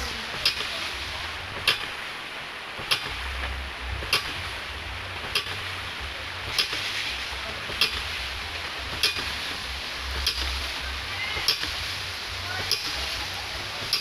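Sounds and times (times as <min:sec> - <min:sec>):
water rushing and splashing: 0:00.0 - 0:14.0
metallic valve clack: 0:00.3 - 0:00.7, 0:01.5 - 0:02.0, 0:02.8 - 0:04.5, 0:05.2 - 0:05.7, 0:06.4 - 0:08.2, 0:08.9 - 0:10.8, 0:11.4 - 0:11.9, 0:13.8 - 0:14.0.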